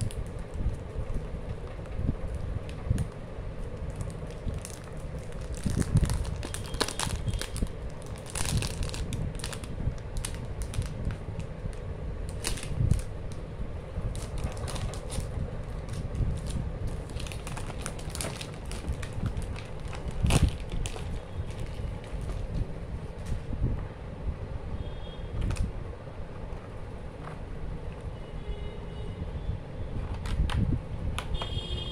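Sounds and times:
plastic wrap crinkling: 0.0 - 13.4, 14.0 - 23.5.

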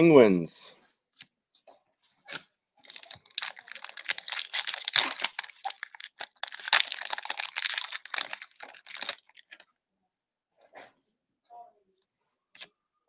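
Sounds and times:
foil wrapper crinkling: 2.8 - 9.6.

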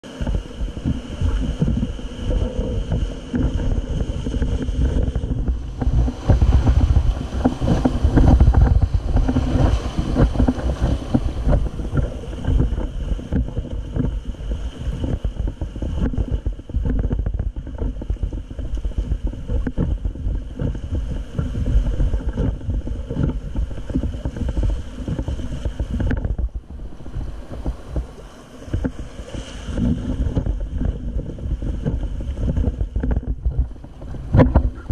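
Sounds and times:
whitewater rapids rushing: 0.0 - 13.4
wind buffeting microphone: 0.0 - 34.9.

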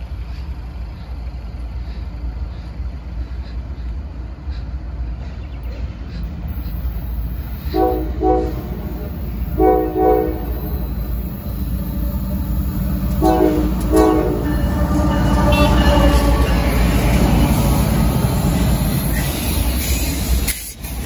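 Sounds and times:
low rumble of locomotives: 0.0 - 21.0
locomotive air horn blasts: 7.6 - 17.2.

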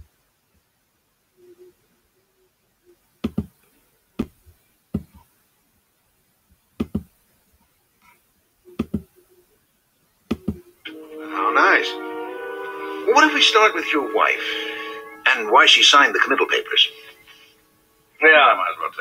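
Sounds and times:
sharp knocks: 3.2 - 3.5, 6.8 - 7.1.

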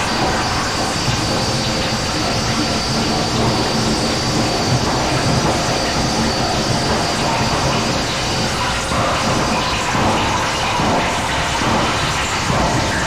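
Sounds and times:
dense rumbling noise: 0.0 - 13.0.

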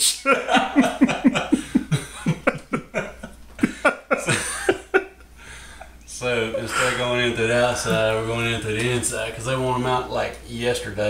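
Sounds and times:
person laughing hard: 0.1 - 5.2.

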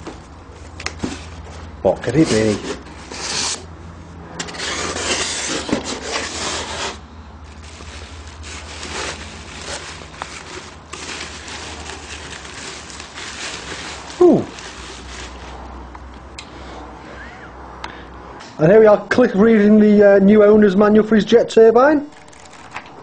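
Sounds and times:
bubble wrap rustling and crinkling: 4.5 - 15.8.

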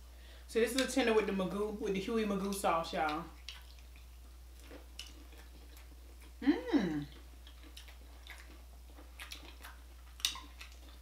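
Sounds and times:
faint chewing and mouth clicks: 2.4 - 6.4, 7.0 - 11.0
person humming mmm: 6.4 - 7.1.

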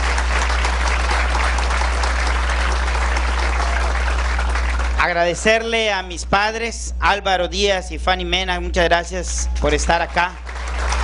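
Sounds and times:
audience applauding: 0.0 - 6.1, 9.6 - 11.0
steady low hum: 0.0 - 11.0.

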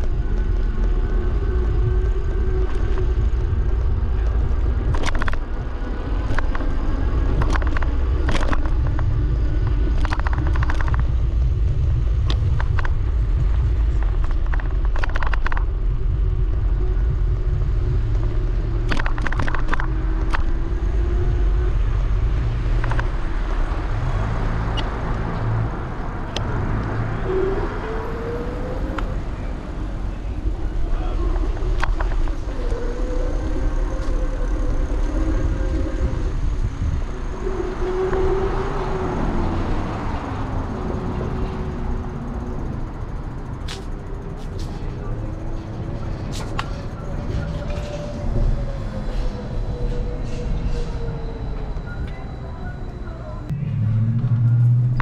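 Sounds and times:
wind and road rumble: 0.0 - 55.0
clicks and rattles: 4.9 - 5.5, 7.4 - 9.1, 9.9 - 11.1, 14.0 - 15.7, 18.8 - 20.5.

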